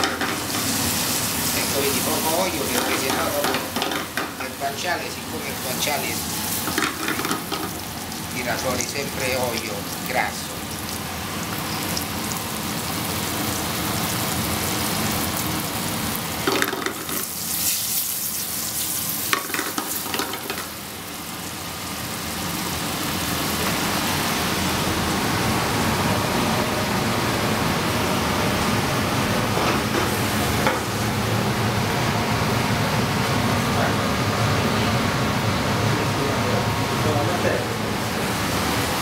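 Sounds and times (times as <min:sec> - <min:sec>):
meat sizzling in a pan: 0:00.0 - 0:25.3.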